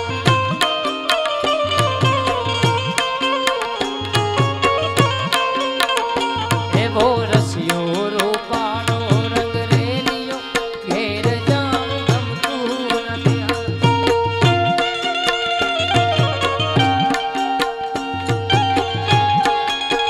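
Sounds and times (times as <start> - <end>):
harmonium and keyboard tones: 0.0 - 20.0
tabla beat: 0.0 - 20.0.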